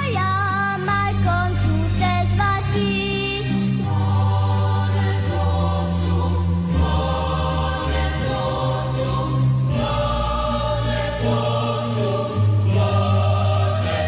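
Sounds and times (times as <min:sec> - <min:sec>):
solemn choral singing: 0:02.6 - 0:14.0.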